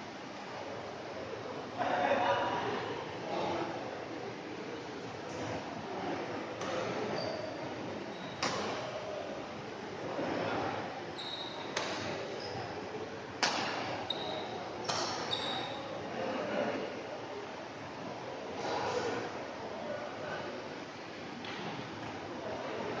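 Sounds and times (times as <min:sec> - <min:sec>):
murmur of spectators: 0:00.0 - 0:23.0
shoes squeaking on court floor: 0:06.7 - 0:08.9, 0:11.2 - 0:12.8, 0:14.0 - 0:15.9
racket hitting shuttlecock: 0:13.4 - 0:13.9.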